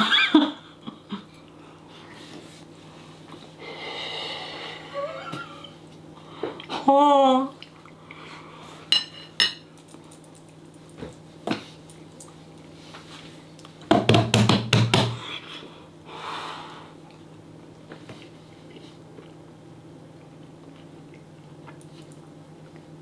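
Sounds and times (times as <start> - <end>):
breathy exhale: 3.6 - 5.1, 15.6 - 17.0.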